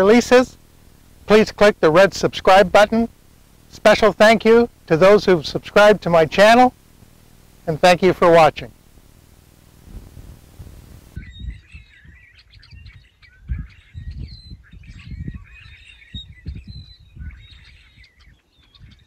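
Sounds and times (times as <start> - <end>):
birds chirping: 0.0 - 19.0
wind on microphone thumps: 9.8 - 17.6.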